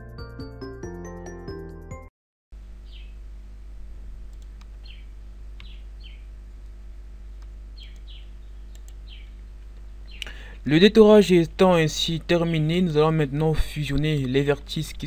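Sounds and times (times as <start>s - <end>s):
low hum: 2.6s - 15.0s
small bird chirping: 2.8s - 3.2s, 4.8s - 6.4s, 7.7s - 10.4s
faint clicks: 4.3s - 4.8s, 8.7s - 10.4s.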